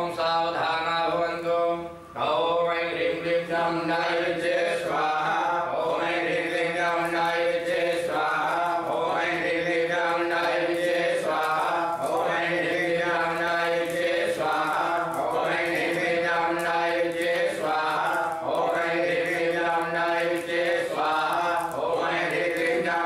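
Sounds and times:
men chanting: 0:00.0 - 0:23.0.

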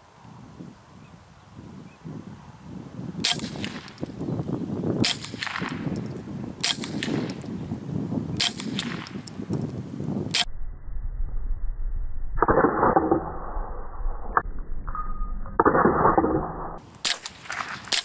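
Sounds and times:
rifle shots: 0:03.2 - 0:04.1, 0:05.0 - 0:05.9, 0:06.6 - 0:07.5, 0:08.4 - 0:09.2, 0:17.0 - 0:18.0.

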